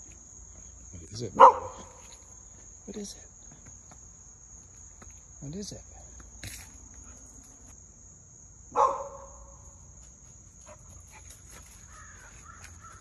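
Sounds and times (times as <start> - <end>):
insects chirring: 0.0 - 13.0
puppy barking: 1.4 - 2.0, 8.8 - 9.4.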